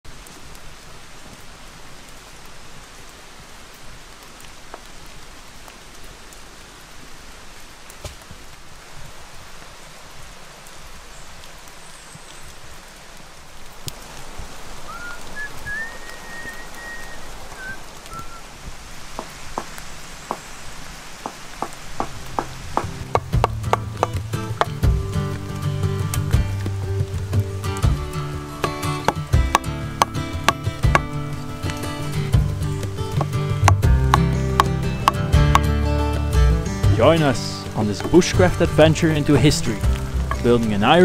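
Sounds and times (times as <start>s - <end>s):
steady rain on wet ground: 0.0s - 41.0s
high whistle: 14.9s - 18.5s
drops striking close by: 21.2s - 25.4s.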